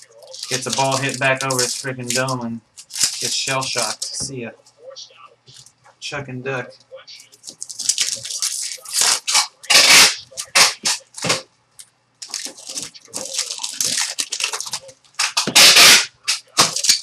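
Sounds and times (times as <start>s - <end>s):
card pack wrappers crinkling: 0.0s - 4.2s, 7.2s - 17.0s
wrapper ripping: 0.0s - 4.2s, 7.4s - 11.4s, 12.2s - 17.0s
cards rubbing together: 0.1s - 4.2s, 7.2s - 11.3s.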